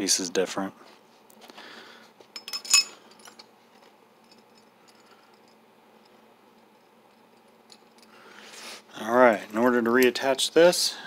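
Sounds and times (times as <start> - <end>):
metal parts clinking and clicking: 2.4 - 6.2, 7.1 - 8.2.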